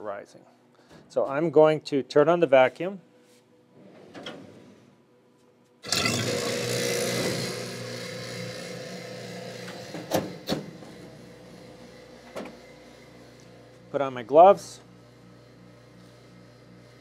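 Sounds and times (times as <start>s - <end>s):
vacuum pump humming and hissing: 5.8s - 17.0s.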